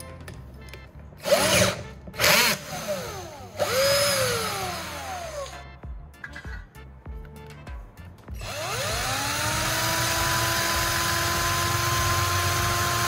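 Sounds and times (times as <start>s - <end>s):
quiet background music: 0.0s - 13.0s
power tool running: 1.2s - 5.6s, 8.4s - 13.0s.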